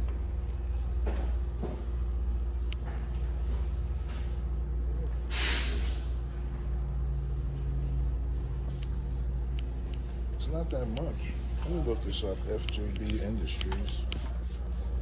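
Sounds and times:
low mechanical hum: 0.0 - 15.0
short hiss: 5.3 - 6.0.

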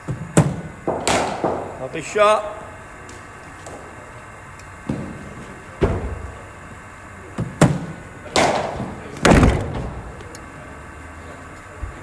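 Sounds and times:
cricket bat striking ball: 0.4 - 1.8, 7.6 - 10.0.

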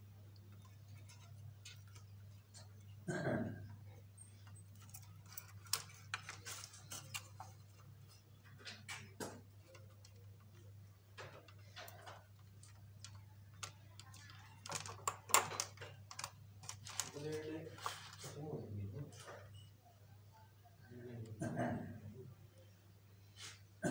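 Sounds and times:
small plastic parts clicking: 4.3 - 10.6, 11.2 - 17.4.

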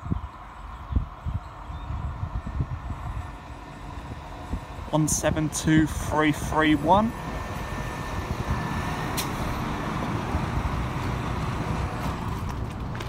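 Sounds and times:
diesel train passing: 0.0 - 13.0.

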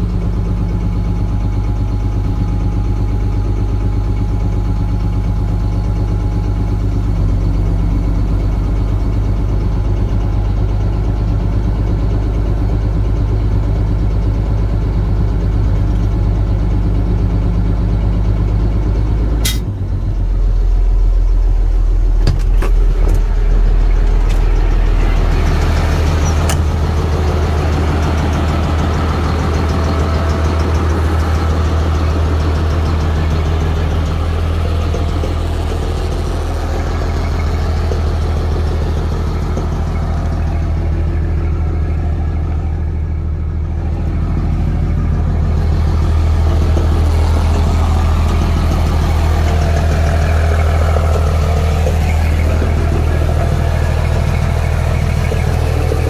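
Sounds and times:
diesel truck engine idling: 0.0 - 56.0.

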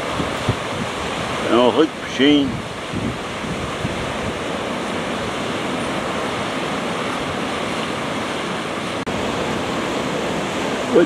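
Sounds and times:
surf breaking over rocks: 0.0 - 11.0.

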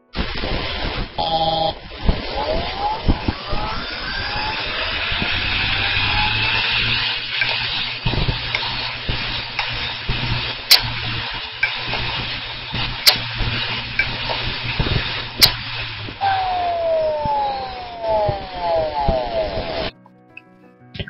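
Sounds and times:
steady hiss and low hum: 0.0 - 19.9
hard disk drive clicking: 7.2 - 15.7.

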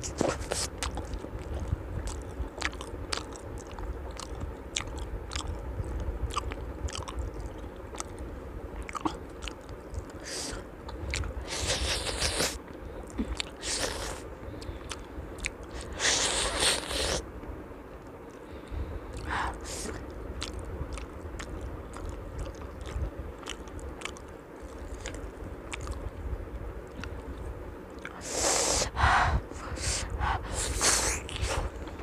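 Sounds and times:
mouth clicks while chewing: 0.0 - 17.2, 19.1 - 26.1.

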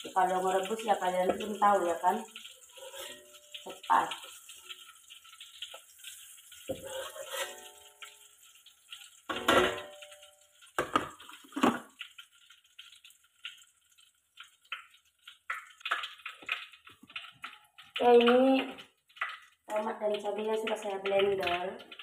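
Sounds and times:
metal spoon scraping a wok: 2.6 - 3.5, 6.7 - 8.0.

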